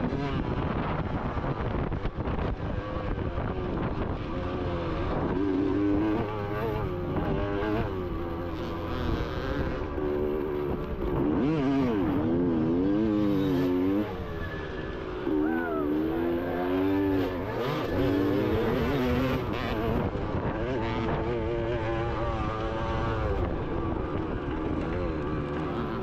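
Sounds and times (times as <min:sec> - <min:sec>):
motorbike engines revving: 0:00.0 - 0:26.0.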